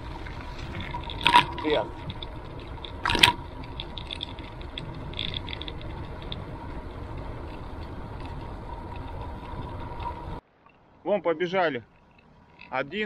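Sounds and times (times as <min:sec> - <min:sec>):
bicycle freewheel ticking: 0:00.0 - 0:10.4
tyres on road: 0:00.0 - 0:13.0
wind: 0:00.0 - 0:13.0.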